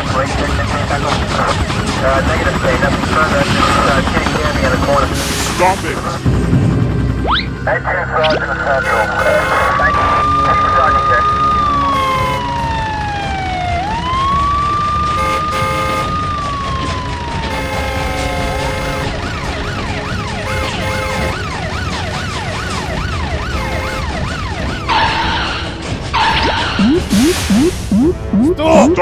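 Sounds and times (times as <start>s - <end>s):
cartoon police siren: 7.2s - 29.0s.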